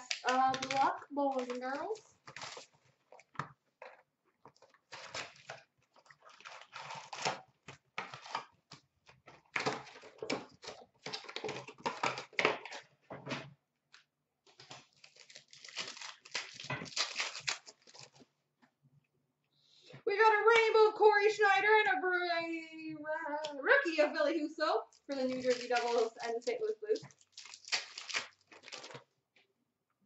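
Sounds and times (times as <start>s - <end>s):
card packs ripping and crinkling: 0.0s - 3.4s, 4.5s - 12.9s, 14.5s - 18.3s, 25.0s - 29.1s.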